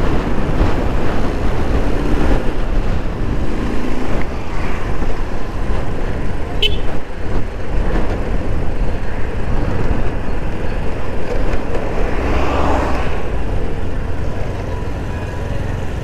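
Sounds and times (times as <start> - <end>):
road traffic rumble: 0.0 - 16.0.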